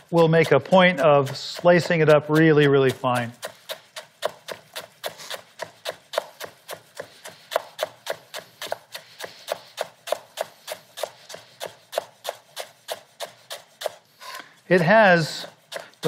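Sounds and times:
knife chopping on wooden board: 0:00.0 - 0:14.2, 0:15.4 - 0:16.0.

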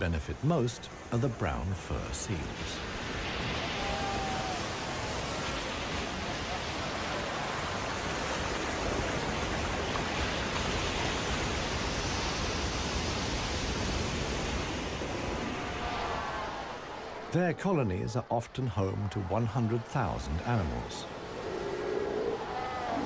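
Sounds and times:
surf breaking over rocks: 0:02.4 - 0:17.3.

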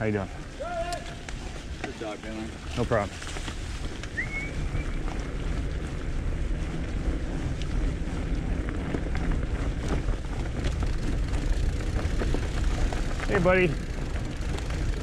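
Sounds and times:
bike tyres rolling on dirt trail: 0:00.0 - 0:15.0.

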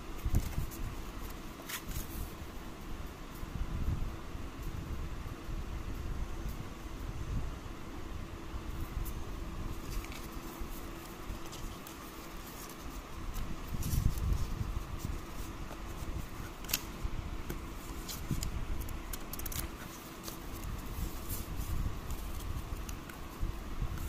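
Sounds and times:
faint steady hum: 0:00.0 - 0:24.0
paper and cardboard rustling: 0:00.2 - 0:02.4, 0:08.8 - 0:24.0.

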